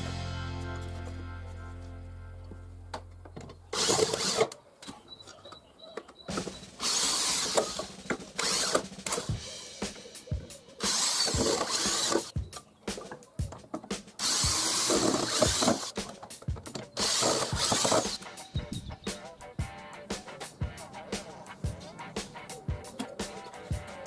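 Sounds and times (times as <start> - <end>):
power drill boring into wood: 3.7 - 4.6, 6.8 - 9.3, 10.8 - 12.3, 14.2 - 16.0, 17.0 - 18.2.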